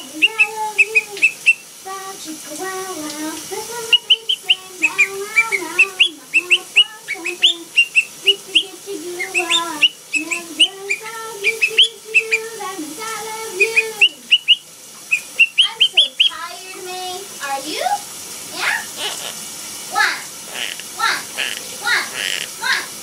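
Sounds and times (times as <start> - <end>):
parrot whistling rising chirps: 0.0 - 1.7, 3.8 - 12.5, 13.6 - 16.4, 18.6 - 19.4
lower sung melody: 0.0 - 16.4.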